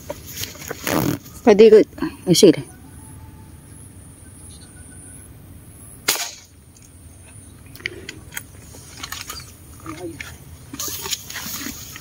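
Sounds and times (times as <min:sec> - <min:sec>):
airgun shot: 0:06.0 - 0:06.5.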